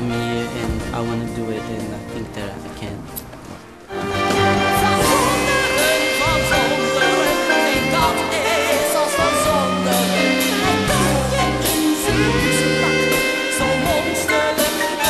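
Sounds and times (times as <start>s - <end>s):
band with bass and cymbals: 4.0s - 15.0s
person singing with vibrato: 4.2s - 15.0s.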